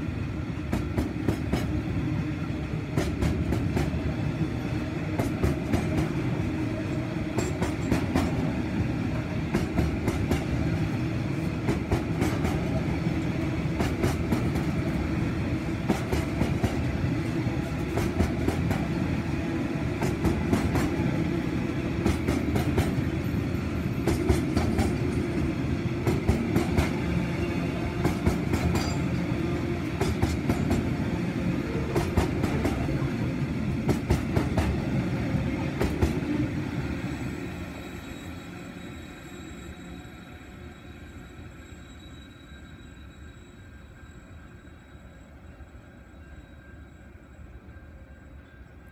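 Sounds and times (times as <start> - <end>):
train wagons rumbling past: 0.0 - 48.9
train wheel clacks: 0.7 - 1.8, 2.9 - 4.0, 7.3 - 8.4, 9.5 - 10.6, 11.3 - 12.8, 13.7 - 14.8, 15.8 - 16.9, 17.7 - 18.9, 20.0 - 21.1, 22.0 - 23.1, 23.9 - 27.0, 28.0 - 31.0, 31.7 - 33.0, 33.8 - 34.8, 35.7 - 36.2.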